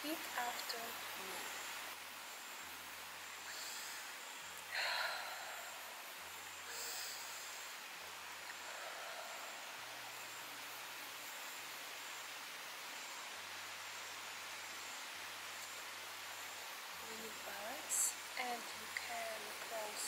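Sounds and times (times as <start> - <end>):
faint open air hiss: 0.0 - 20.0
woman breathing: 3.4 - 10.4.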